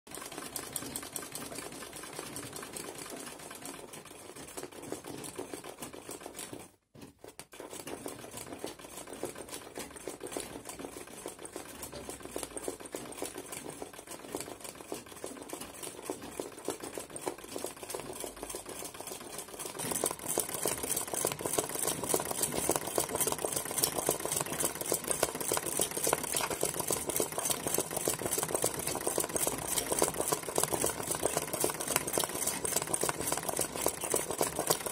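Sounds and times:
sewing machine rattling: 0.1 - 34.9.

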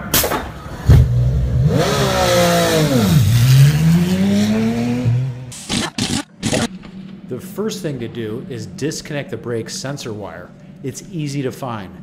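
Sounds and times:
race car engine accelerating: 0.7 - 5.6.

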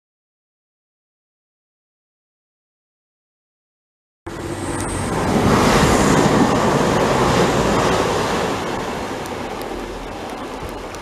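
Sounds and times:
diesel train approaching: 4.3 - 11.0
heavy rain: 4.3 - 11.0.

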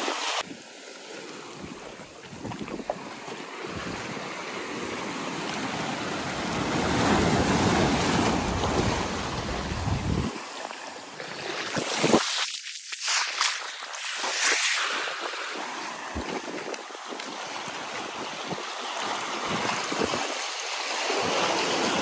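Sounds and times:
surf washing on beach: 0.0 - 22.0
wind buffeting microphone: 1.6 - 10.4, 15.9 - 20.4.

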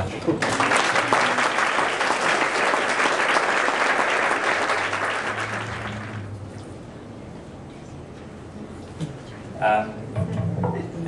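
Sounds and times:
audience applauding: 0.3 - 6.3.

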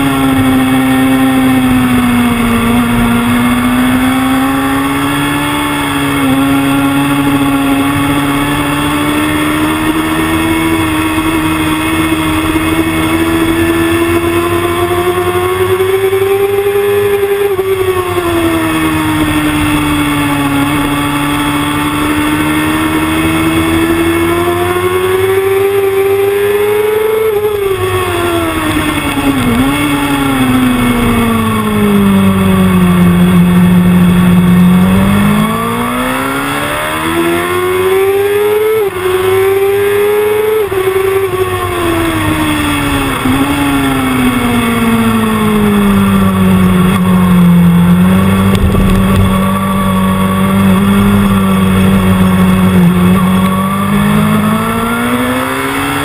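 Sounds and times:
motorcycle engine revving: 0.0 - 56.0
wind rushing: 48.2 - 52.7.

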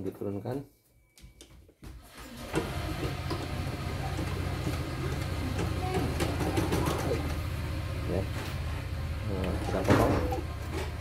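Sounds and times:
embroidery machine rattling: 2.3 - 7.6.

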